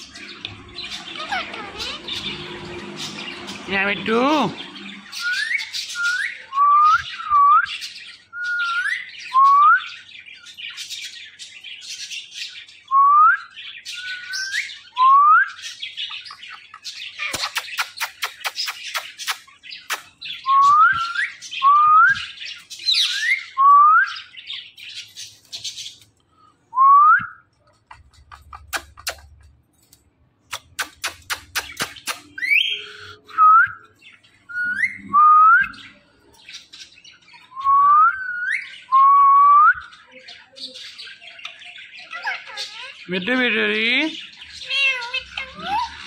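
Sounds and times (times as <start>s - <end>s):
parakeet raspy squawks: 0.2s - 3.7s, 44.4s - 46.0s.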